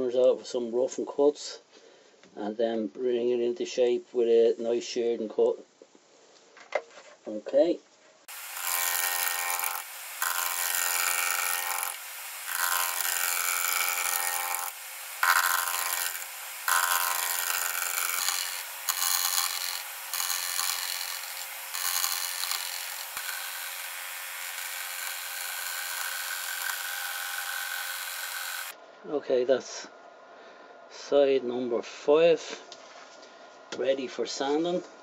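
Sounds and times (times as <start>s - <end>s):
wood lathe gouge cutting: 8.3s - 28.7s.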